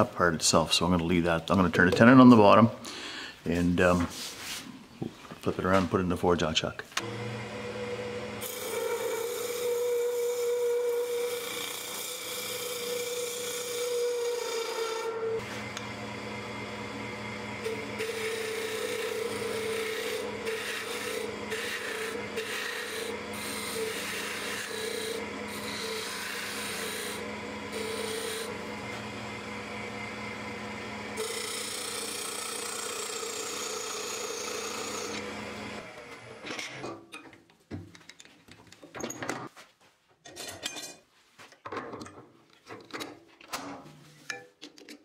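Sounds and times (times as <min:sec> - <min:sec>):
lathe humming: 0:07.0 - 0:36.4
tool scraping wood on a lathe: 0:08.4 - 0:15.8, 0:17.6 - 0:29.1, 0:31.2 - 0:36.9.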